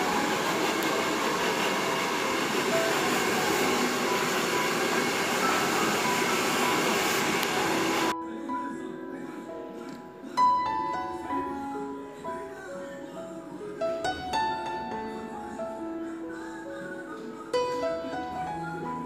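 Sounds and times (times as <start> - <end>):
hair dryer blowing: 0.0 - 8.1.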